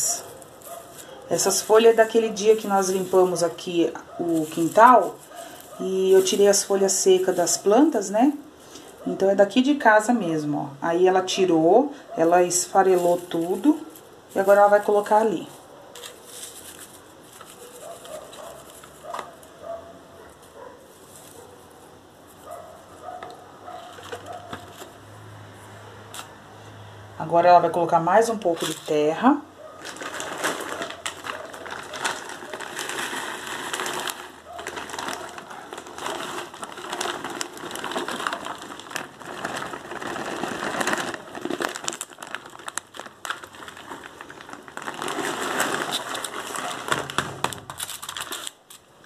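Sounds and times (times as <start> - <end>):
dry leaves rustling into carton: 0.0 - 10.1, 11.1 - 25.0, 28.1 - 48.9
plastic bag crinkling: 0.0 - 10.1, 11.0 - 25.0, 28.2 - 49.0
soil pouring into carton: 31.6 - 35.2, 35.8 - 42.8, 43.4 - 47.0.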